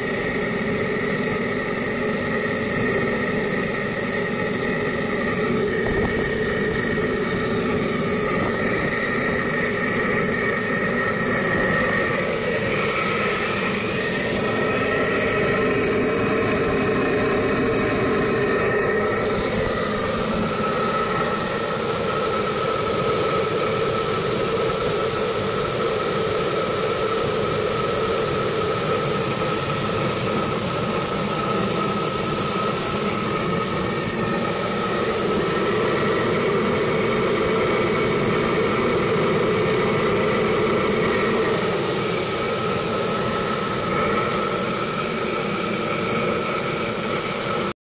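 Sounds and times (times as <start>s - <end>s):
tractor engine running: 0.0s - 22.1s.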